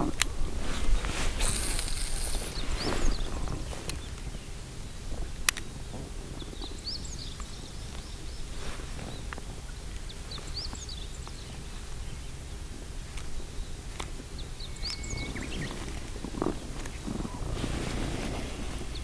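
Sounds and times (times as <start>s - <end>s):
low rumble of wind: 0.0s - 19.0s
small birds chirping: 0.0s - 19.0s.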